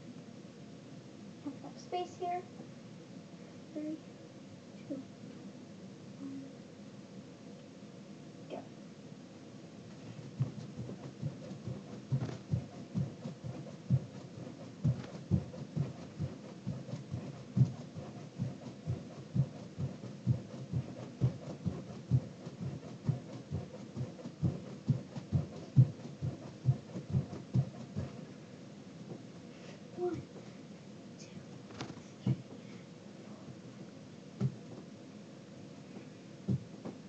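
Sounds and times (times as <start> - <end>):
feet thumping on floor: 10.2 - 28.2, 34.4 - 34.8, 36.5 - 37.0.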